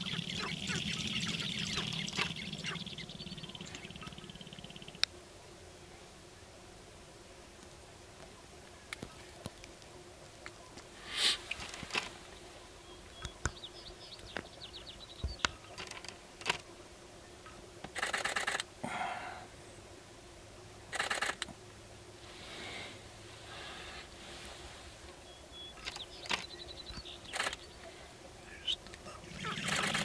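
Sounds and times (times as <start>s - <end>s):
grouse feet and tail rattling: 0.0s - 5.1s, 7.6s - 16.7s, 17.4s - 18.7s, 20.9s - 21.7s, 22.4s - 30.0s
sharp clicks: 25.8s - 27.7s.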